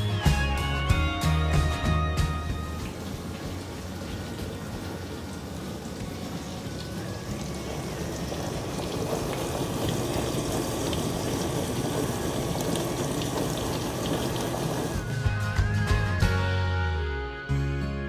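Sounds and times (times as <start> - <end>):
dishwasher water spraying: 2.4 - 15.2.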